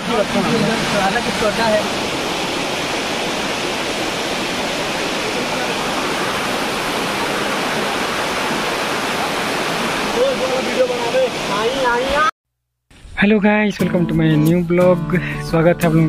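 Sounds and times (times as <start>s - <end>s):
waterfall rushing: 0.0s - 12.3s.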